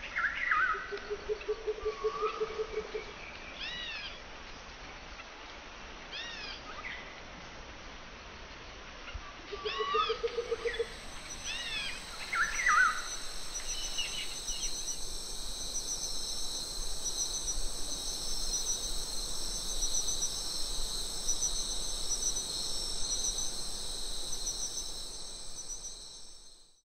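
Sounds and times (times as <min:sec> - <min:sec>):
bird calls: 0:09.6 - 0:26.0
insect chorus trilling: 0:09.7 - 0:26.8.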